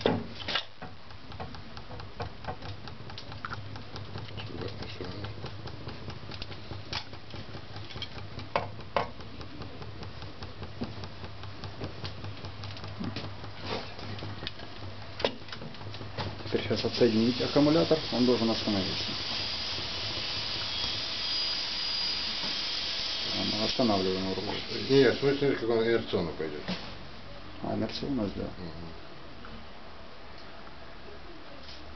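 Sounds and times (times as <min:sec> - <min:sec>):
motor low hum with ticking: 0:00.0 - 0:28.6
sharp clicks: 0:00.4 - 0:21.5.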